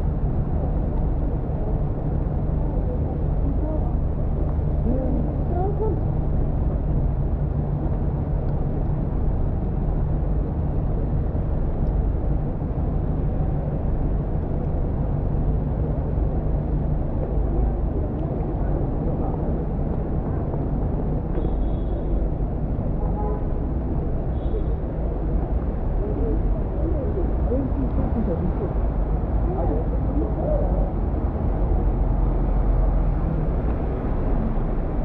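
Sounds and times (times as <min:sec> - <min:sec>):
city traffic rumble: 0:00.0 - 0:35.0
faint voices of passers-by: 0:00.4 - 0:06.7, 0:15.6 - 0:35.0.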